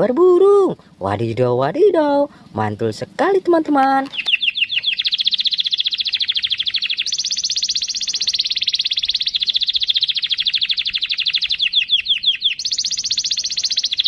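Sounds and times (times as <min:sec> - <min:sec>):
canary singing rapid trills: 0:03.9 - 0:14.0.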